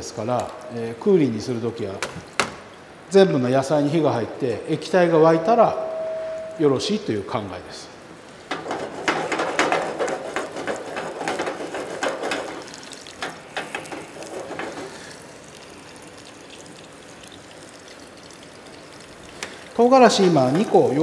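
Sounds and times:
crackly rustling noise: 8.2s - 21.0s
clicks and clatter at a pan: 8.5s - 15.2s.

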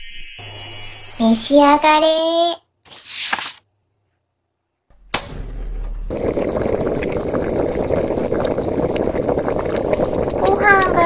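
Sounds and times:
rushing bubbling cooker noise: 4.9s - 11.0s.

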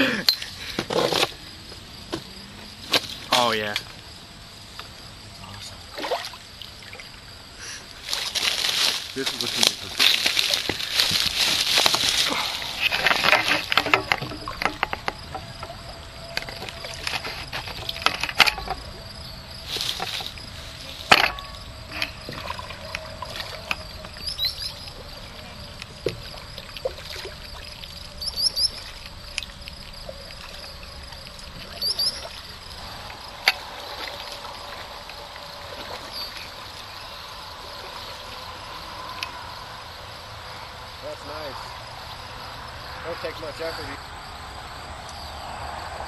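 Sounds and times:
paddle splashes and drips: 5.9s - 7.2s, 7.9s - 18.9s, 19.6s - 38.5s.

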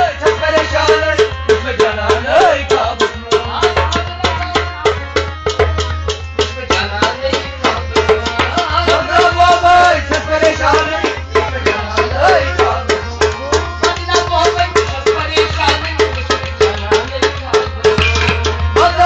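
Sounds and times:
hand drum strokes: 16.8s - 19.0s.

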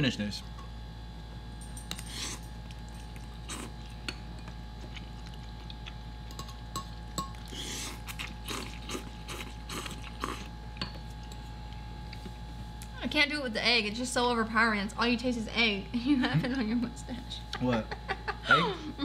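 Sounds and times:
steady low hum: 0.0s - 19.0s
noodle slurping: 7.4s - 10.6s.

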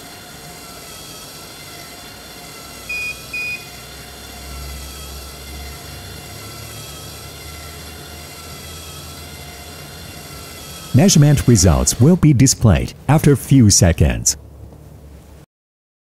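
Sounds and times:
short electronic beeps: 2.9s - 3.7s.

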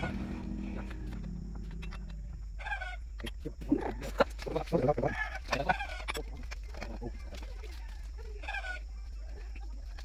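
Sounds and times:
chickens calling: 2.3s - 3.2s, 5.0s - 9.8s.

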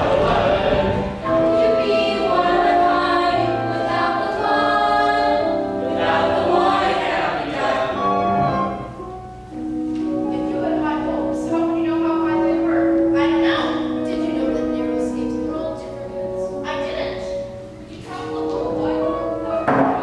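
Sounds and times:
cast singing chorus number: 0.0s - 8.8s.

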